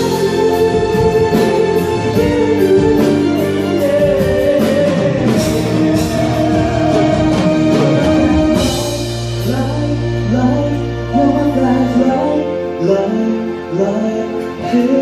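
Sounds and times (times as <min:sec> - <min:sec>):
drum kit beat: 0:00.0 - 0:10.6
keyboard and horn chords: 0:00.0 - 0:15.0
person singing: 0:00.0 - 0:15.0.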